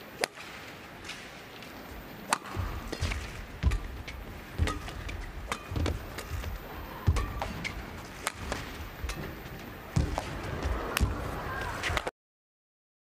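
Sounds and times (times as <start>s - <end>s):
racket striking shuttlecock: 2.2s - 11.3s
footsteps thudding on court: 2.6s - 11.3s.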